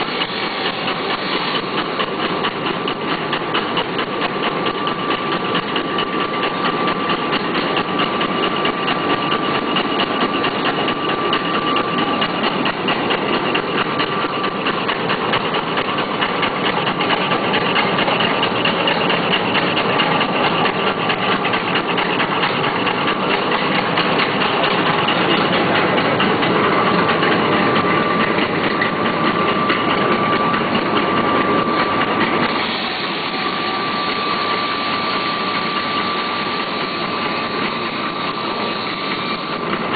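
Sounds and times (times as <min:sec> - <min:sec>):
machine rollers clattering: 0:00.0 - 0:39.9
steady high machine whine: 0:00.0 - 0:39.9.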